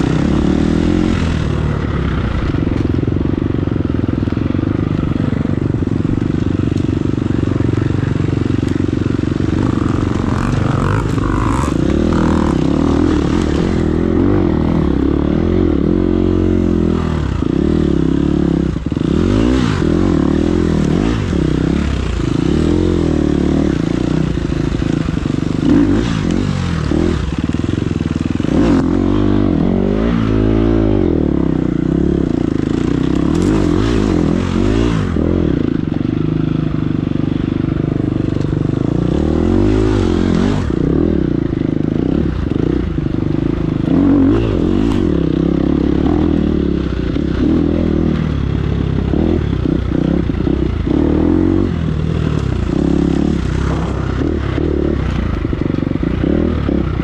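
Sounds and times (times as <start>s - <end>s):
motorcycle engine revving: 0.0s - 57.0s
steady rushing noise: 31.7s - 57.0s.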